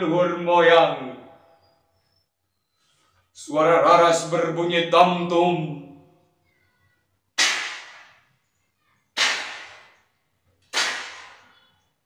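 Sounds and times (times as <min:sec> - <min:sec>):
gunshots: 0:07.4 - 0:08.2, 0:09.2 - 0:10.0, 0:10.7 - 0:11.5.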